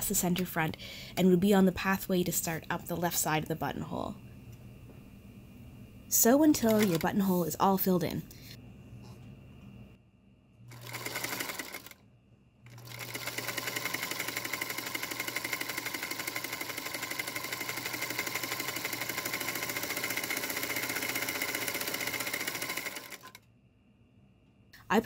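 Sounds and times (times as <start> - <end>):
sewing machine stitching: 6.6 - 7.2, 10.7 - 12.0, 12.7 - 23.4.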